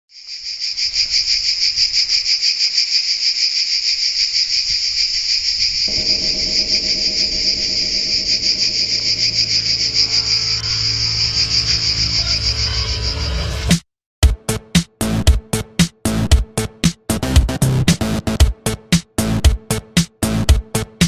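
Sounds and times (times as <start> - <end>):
cicada buzzing: 0.1 - 13.4
soft music with sustained tones: 5.9 - 13.7.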